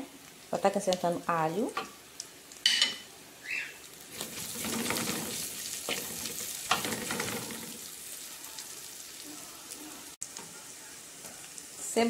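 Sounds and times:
sausage sizzling in oil: 0:00.0 - 0:12.0
plastic spatula scraping pot: 0:04.2 - 0:07.6.

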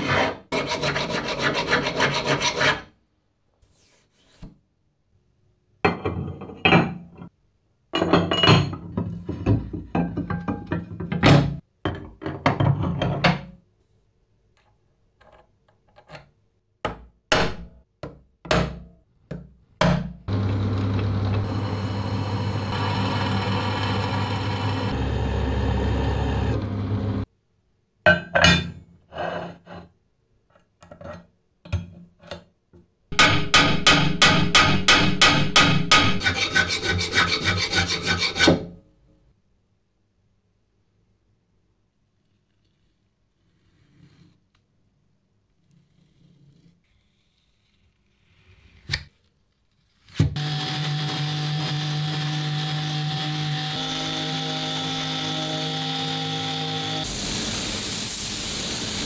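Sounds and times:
milling cutter cutting steel: 0:20.3 - 0:26.6.

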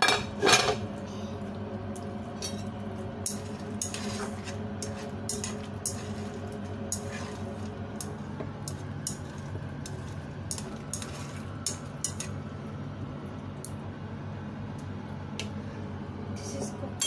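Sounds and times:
steady low hum: 0:00.0 - 0:17.0
utensils scraping a frying pan: 0:03.2 - 0:07.7, 0:09.8 - 0:12.3.

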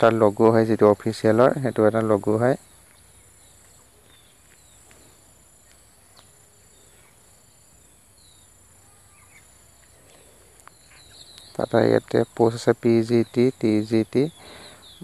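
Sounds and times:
faint high chirps: 0:00.0 - 0:15.0
steady high hiss: 0:00.0 - 0:15.0.

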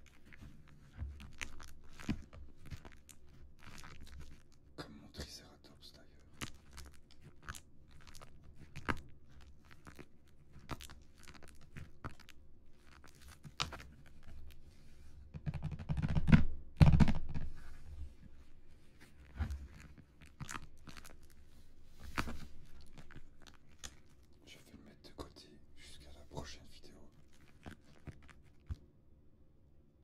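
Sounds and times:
shrink wrap crinkling: 0:00.0 - 0:04.8, 0:06.1 - 0:15.1, 0:18.2 - 0:24.4, 0:26.9 - 0:28.8.

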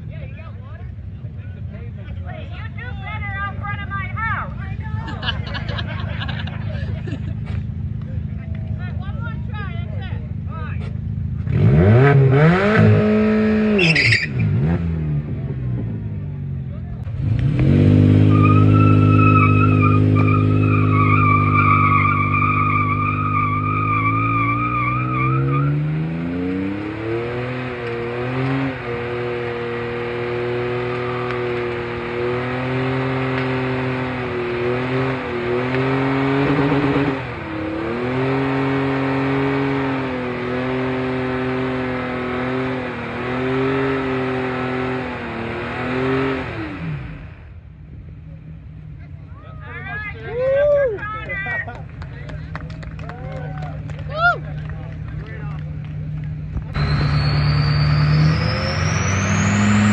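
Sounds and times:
pickup engine at high revs: 0:10.8 - 0:16.3, 0:17.0 - 0:47.6, 0:56.2 - 0:59.9
tyre squeal: 0:13.7 - 0:14.5, 0:18.2 - 0:26.0, 0:56.8 - 0:59.9.

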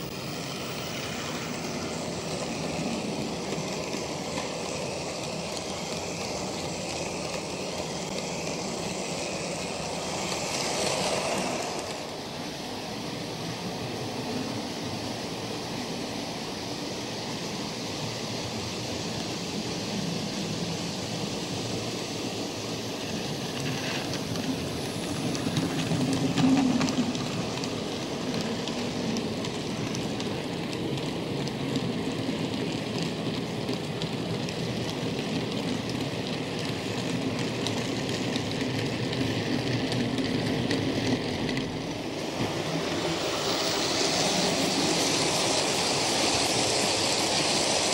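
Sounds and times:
model train rumbling on track: 0:00.0 - 0:47.9.

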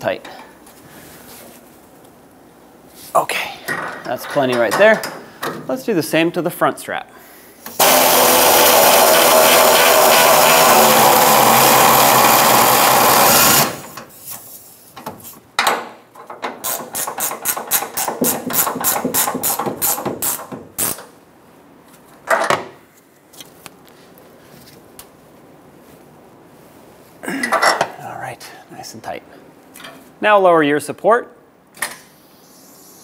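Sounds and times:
power ratchet spinning nut: 0:07.8 - 0:14.0.

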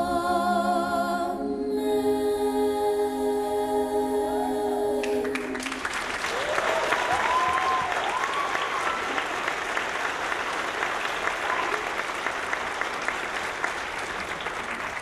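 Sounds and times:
audience clapping: 0:05.0 - 0:15.0
crowd whooping: 0:05.4 - 0:10.0.

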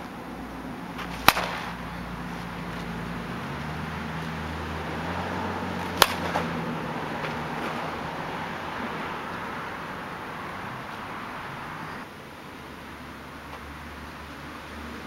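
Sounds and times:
bat hitting softball: 0:01.0 - 0:02.0, 0:05.8 - 0:06.6.

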